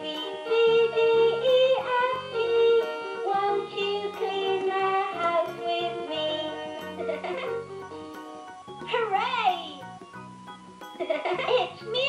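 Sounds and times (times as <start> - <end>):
toy playing electronic melody: 0.2 - 12.0
synthetic sung voice: 8.8 - 9.9, 11.2 - 12.0.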